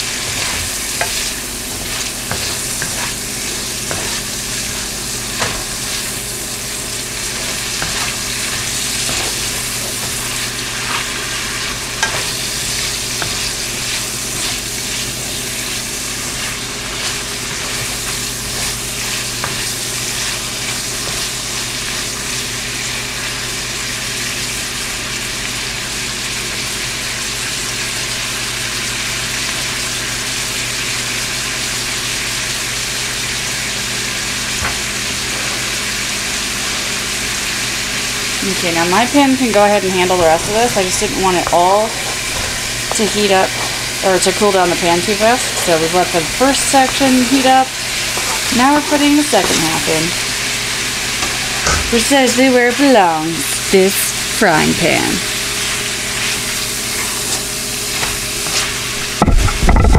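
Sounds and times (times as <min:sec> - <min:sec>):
beef sizzling in a frying pan: 0:00.0 - 0:59.9
wooden spatula scraping a pan: 0:38.8 - 0:49.9.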